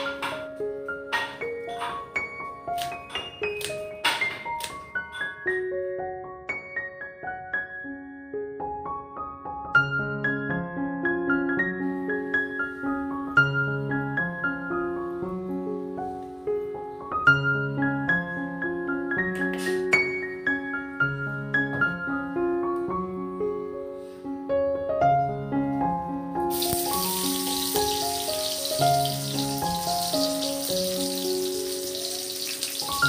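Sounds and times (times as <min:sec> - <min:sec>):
gentle piano music: 0:00.0 - 0:33.0
onion sizzling in hot oil: 0:26.5 - 0:33.0.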